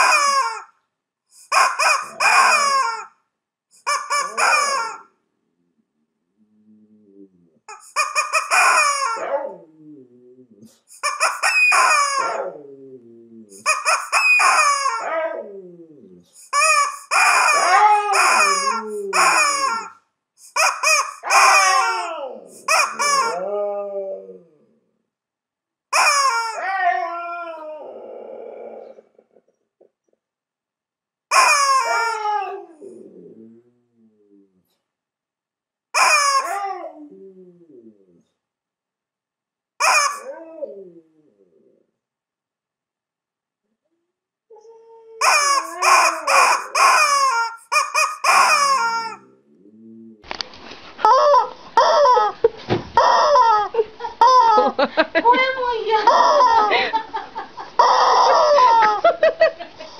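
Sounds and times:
rubber chicken toy squawking: 0.0 - 0.8, 1.4 - 3.2, 3.8 - 5.1, 7.7 - 9.4, 10.9 - 12.5, 13.5 - 15.1, 16.4 - 23.4, 25.9 - 26.7, 31.3 - 32.4, 36.0 - 36.7, 39.8 - 40.4, 45.2 - 49.2, 51.0 - 52.4, 53.0 - 54.6, 57.8 - 59.0
husky howling: 8.5 - 10.6, 11.6 - 13.5, 14.5 - 16.2, 17.2 - 19.9, 21.2 - 24.6, 31.8 - 33.6, 53.0 - 53.8, 57.8 - 59.1.

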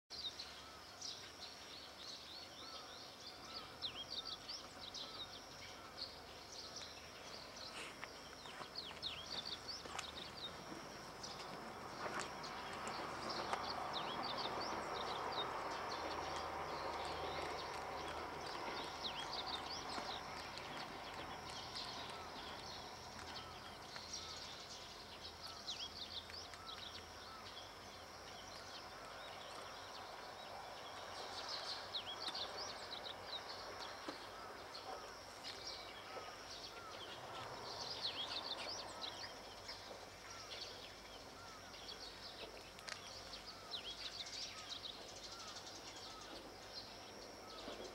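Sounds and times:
small birds chirping: 0.1 - 47.9
distant train rumble: 9.1 - 24.3.

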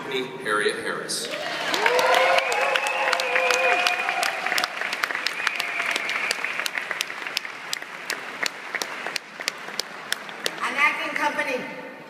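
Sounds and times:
audience applauding: 1.3 - 10.8.

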